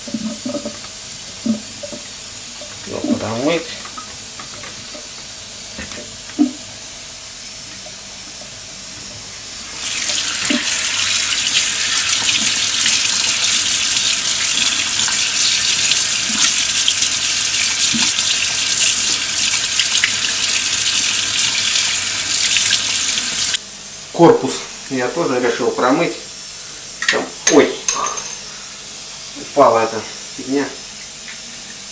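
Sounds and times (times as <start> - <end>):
tap water running into sink: 0.0 - 3.1, 9.7 - 23.6.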